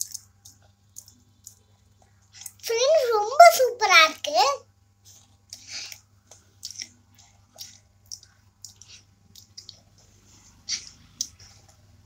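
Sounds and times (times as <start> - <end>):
faint steady hum: 0.0 - 12.0
girl's mouth noises and lip smacks: 5.1 - 11.9.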